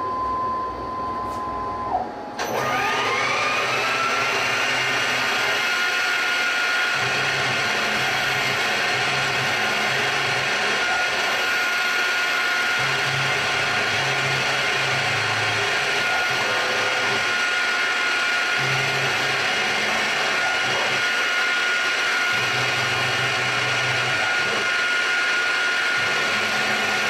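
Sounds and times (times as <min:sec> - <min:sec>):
spindle whine: 0:00.0 - 0:11.7.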